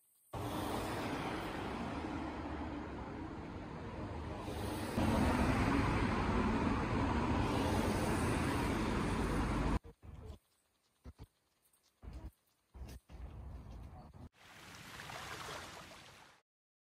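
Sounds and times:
city street traffic: 0.3 - 10.4.

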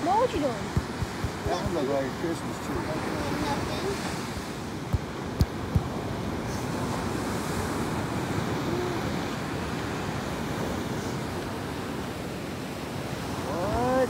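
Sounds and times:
wind on microphone: 0.0 - 14.0
person saying ooh: 8.6 - 9.2.

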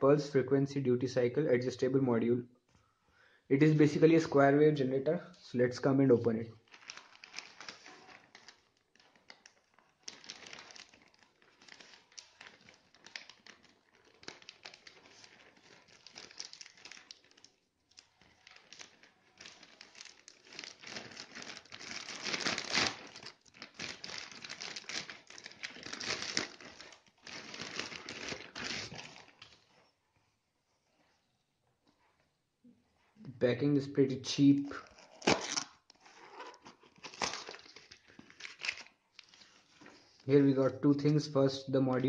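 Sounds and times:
plastic bag crinkling: 6.6 - 29.9, 34.7 - 40.3.

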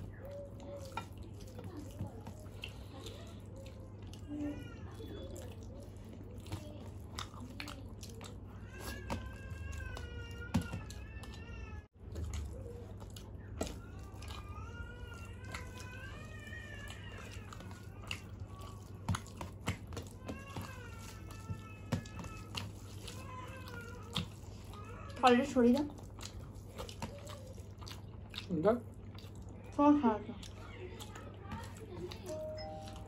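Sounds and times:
fingers mixing rice on steel plates: 12.1 - 28.4.

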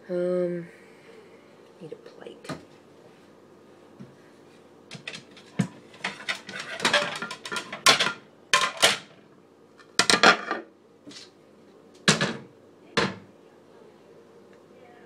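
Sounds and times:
dishes and utensils clattering: 4.9 - 9.1, 9.9 - 10.7.

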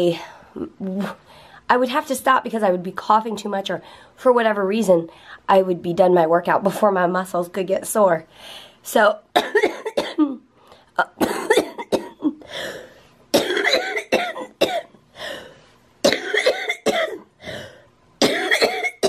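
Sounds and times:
woman coughing: 9.4 - 10.4, 11.0 - 15.0, 16.0 - 17.3, 18.2 - 19.0.

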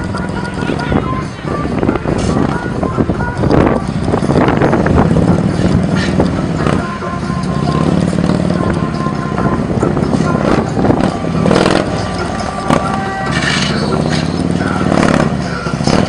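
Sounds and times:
motorcycle engine at low revs: 10.2 - 16.0.

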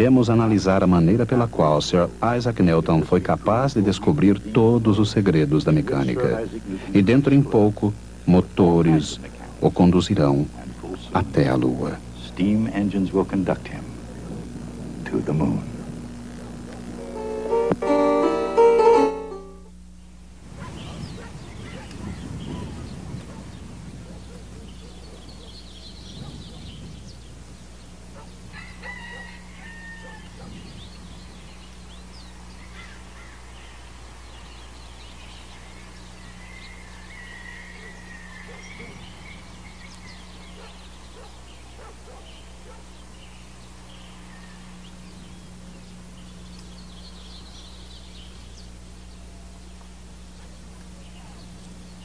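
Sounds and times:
birds chirping: 0.0 - 52.0
steady low hum: 0.0 - 52.0
chickens calling: 20.6 - 52.0
rooster crowing: 28.2 - 30.6, 35.8 - 39.3, 44.2 - 44.9.

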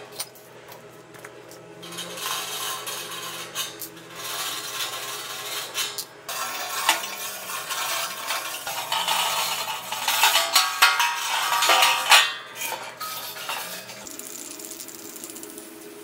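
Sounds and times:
metal clinking and scraping: 1.5 - 14.1.

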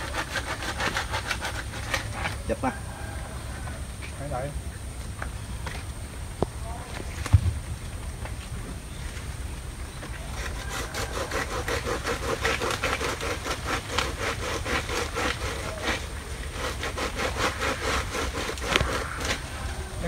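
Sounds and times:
rhythmic scraping strokes: 0.0 - 2.8, 10.2 - 20.0
steady low rumble: 2.1 - 10.1.

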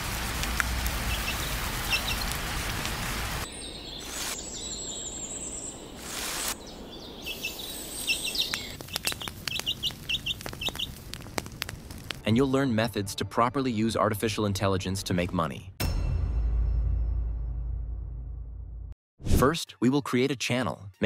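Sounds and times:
rain-like hiss: 0.0 - 4.6, 5.9 - 12.2
baby chick peeping: 1.1 - 2.4, 7.3 - 11.0.

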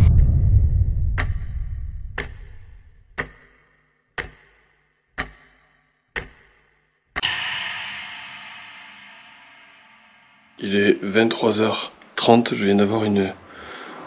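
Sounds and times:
low rumble: 0.0 - 3.2
clock ticking: 1.1 - 7.7
ringing hit: 7.2 - 11.5.

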